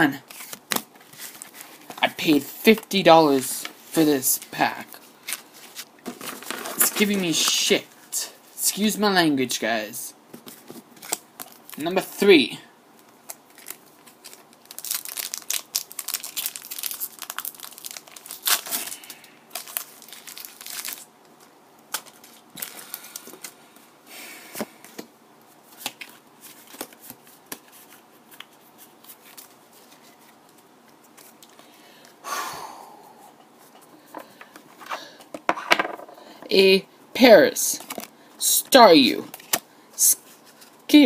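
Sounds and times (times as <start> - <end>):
foil wrapper tearing and crinkling: 13.3 - 21.1.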